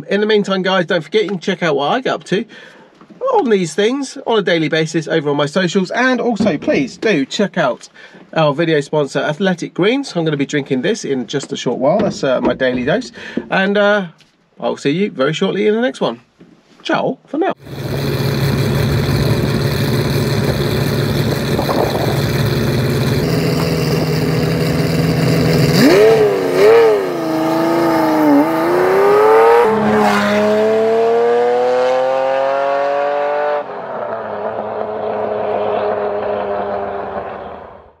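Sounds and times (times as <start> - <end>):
sports car engine revving: 17.6 - 38.0.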